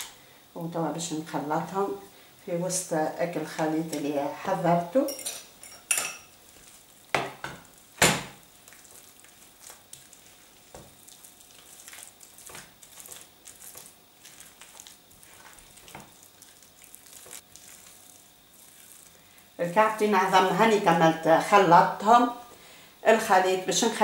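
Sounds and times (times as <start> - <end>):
wet squelching and scraping: 8.6 - 19.2.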